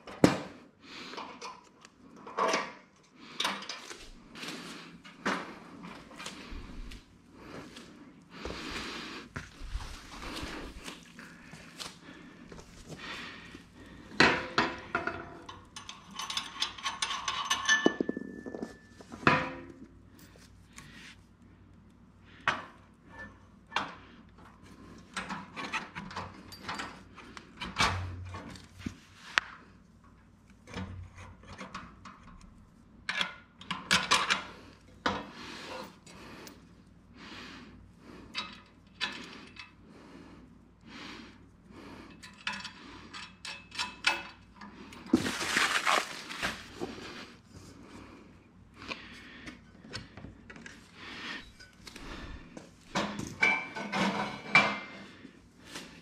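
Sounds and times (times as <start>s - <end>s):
plastic bag crinkling: 45.1s - 46.8s.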